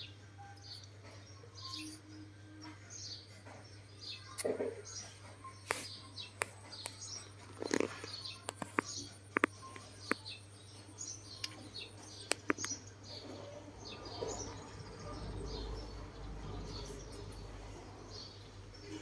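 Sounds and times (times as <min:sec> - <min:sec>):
small birds chirping: 0:00.0 - 0:19.0
sharp clicks: 0:12.2 - 0:12.8.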